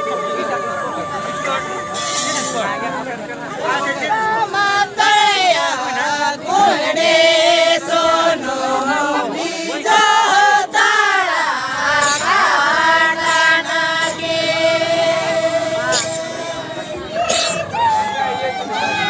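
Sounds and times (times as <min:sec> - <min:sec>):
group of voices chanting a song: 0:04.4 - 0:17.4.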